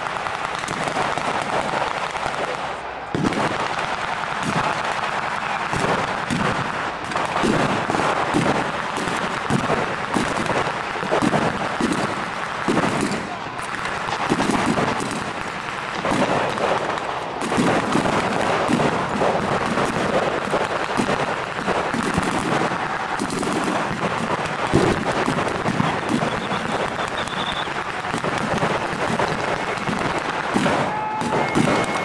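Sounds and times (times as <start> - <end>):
rifles firing blanks: 24.5 - 32.0.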